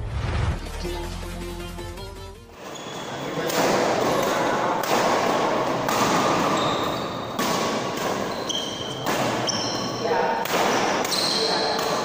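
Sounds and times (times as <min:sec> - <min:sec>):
sports hall noise: 0:02.5 - 0:12.0
rackets hitting shuttlecock: 0:03.4 - 0:09.7, 0:10.4 - 0:12.0.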